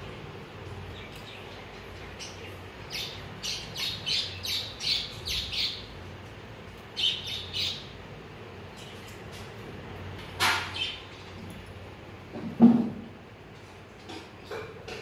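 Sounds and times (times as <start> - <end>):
parakeets squawking: 1.3 - 5.9.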